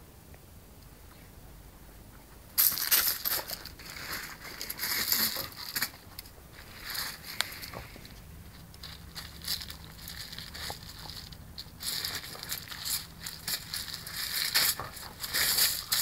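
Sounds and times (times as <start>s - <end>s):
dog crunching ice cubes: 8.6s - 16.0s.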